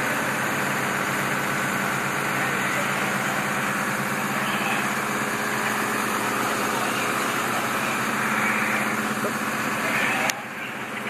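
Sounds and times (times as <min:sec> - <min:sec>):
diesel engine fast idle: 0:00.0 - 0:11.0.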